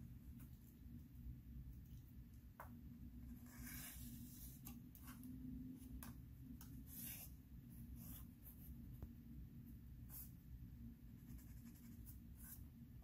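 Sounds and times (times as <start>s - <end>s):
low steady hum: 0.0s - 13.0s
marker pen scratching cardboard: 3.2s - 5.3s, 6.0s - 8.7s, 10.0s - 10.4s, 11.1s - 12.8s.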